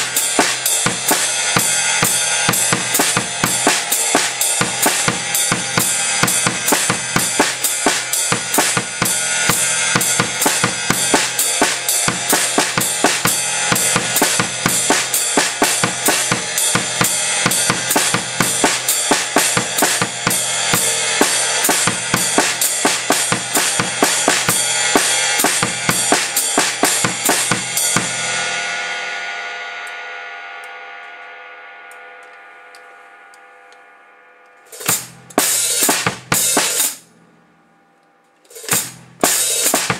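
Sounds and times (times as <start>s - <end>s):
drum kit playing: 0.0s - 28.7s, 34.7s - 37.4s, 38.4s - 39.9s
cymbal ringing: 0.0s - 39.9s.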